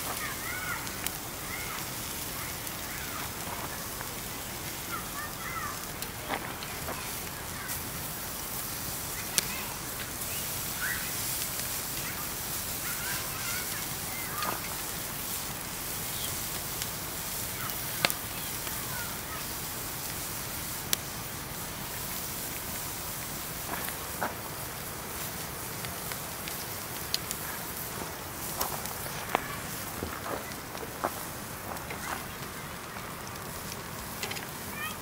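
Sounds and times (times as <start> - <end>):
campfire crackling and popping: 0.0 - 35.0
faint bird chirps: 10.3 - 11.2.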